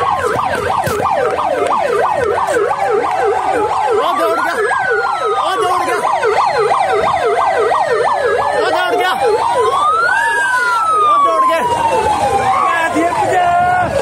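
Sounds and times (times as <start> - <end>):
siren in fast yelp: 0.0 - 14.0
siren in slow wail: 0.0 - 14.0.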